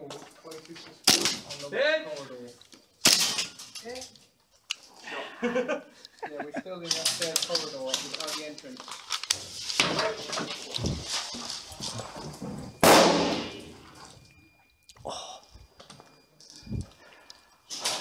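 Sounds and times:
kit rustling: 6.9s - 12.8s
footsteps: 8.1s - 12.8s
loud sudden bang: 12.8s - 13.8s.

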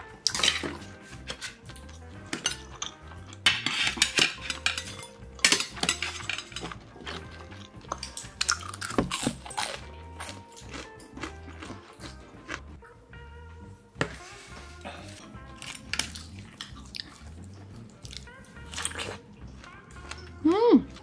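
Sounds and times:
metal chopsticks clinking on bowls: 2.3s - 8.6s.

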